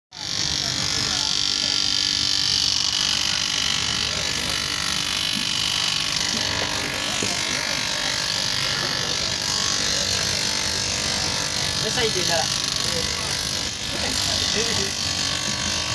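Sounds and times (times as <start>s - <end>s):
bench grinder grinding: 0.1s - 15.9s.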